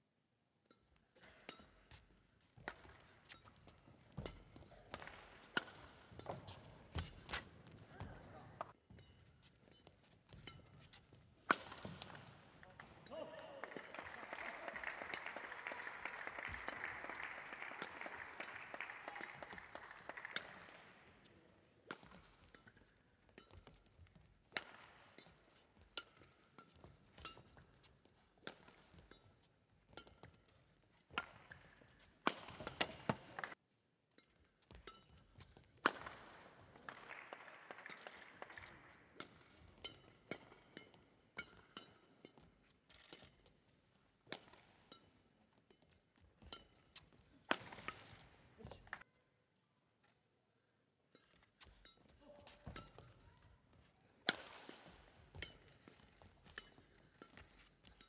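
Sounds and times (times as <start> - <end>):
racket striking shuttlecock: 2.6 - 14.2, 21.8 - 33.6, 34.2 - 37.1, 37.8 - 43.6, 44.2 - 49.0, 51.2 - 58.0
spectator applause: 13.1 - 20.9, 36.9 - 38.8.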